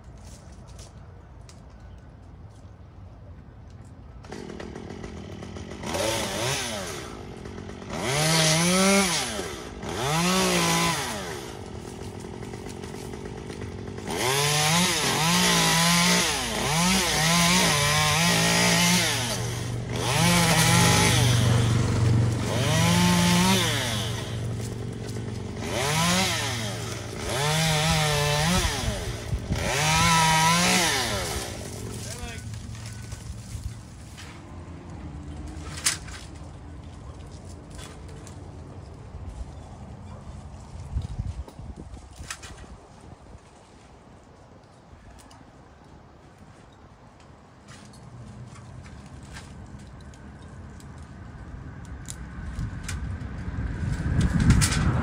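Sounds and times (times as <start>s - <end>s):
chainsaw revving: 4.2s - 33.4s.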